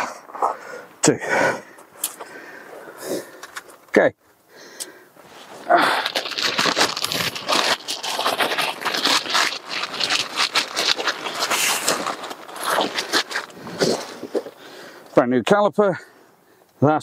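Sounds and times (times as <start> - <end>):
plastic packaging crinkling: 5.2 - 15.0.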